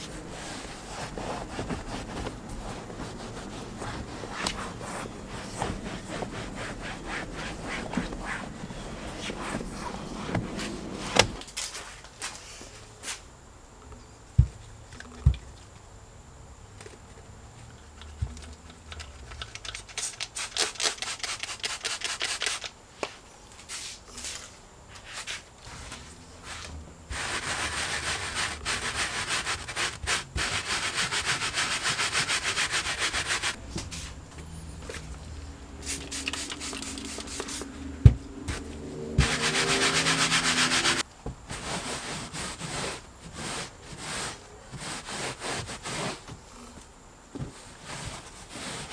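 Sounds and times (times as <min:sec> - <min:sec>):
carpet brush scrubbing carpet: 0:00.0 - 0:11.4, 0:25.2 - 0:46.3, 0:47.8 - 0:48.9.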